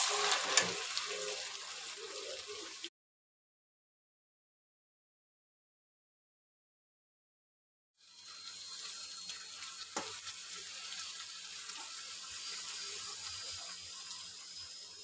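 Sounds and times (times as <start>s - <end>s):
chicken sizzling in hot oil: 0.0s - 2.9s, 8.0s - 15.0s.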